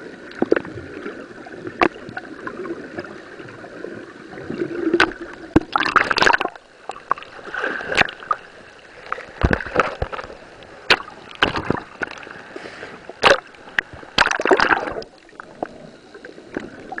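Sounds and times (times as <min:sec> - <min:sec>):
seawater splashing and sloshing: 0:07.1 - 0:15.2.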